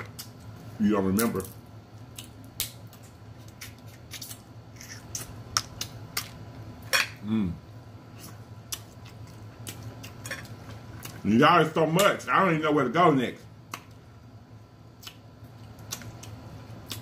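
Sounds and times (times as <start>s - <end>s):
crab shells cracking: 2.0s - 6.4s.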